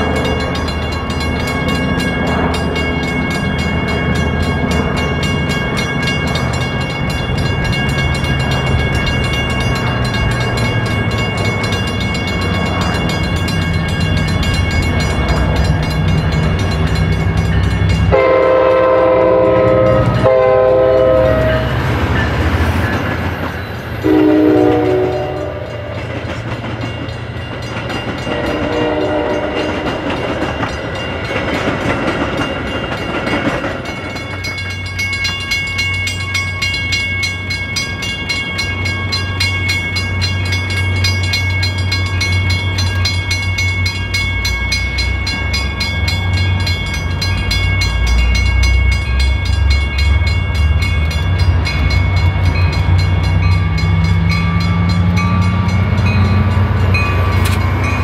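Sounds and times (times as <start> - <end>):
diesel locomotive engine drone: 0.0 - 58.0
passenger cars rolling: 0.0 - 58.0
train horn blasts: 18.1 - 22.0, 24.0 - 26.0, 28.2 - 29.8.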